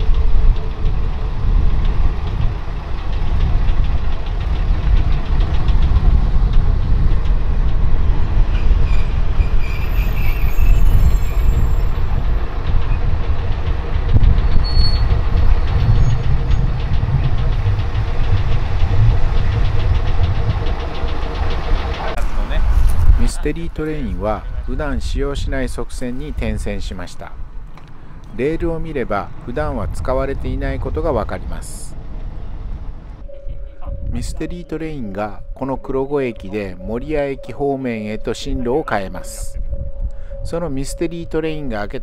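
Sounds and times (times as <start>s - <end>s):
train wheels clicking over rail joints: 0.0s - 33.2s
diesel railcar rumbling: 0.0s - 42.0s.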